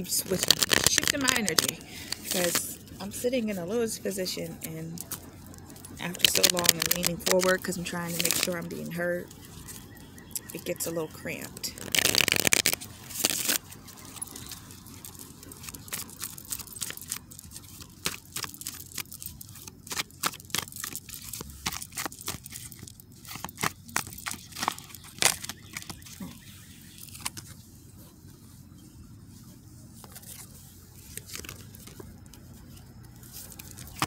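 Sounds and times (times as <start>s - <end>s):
cards being shuffled: 0.1s - 3.4s, 4.4s - 10.6s, 11.4s - 27.6s, 30.0s - 34.0s.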